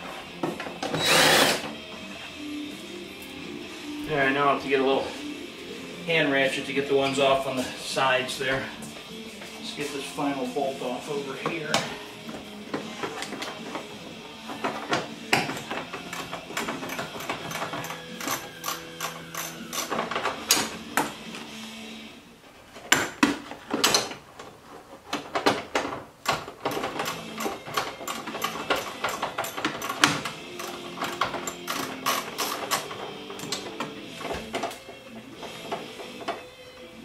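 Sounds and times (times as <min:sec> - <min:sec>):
hand ratchet clicking: 0:16.0 - 0:20.7, 0:26.2 - 0:33.6.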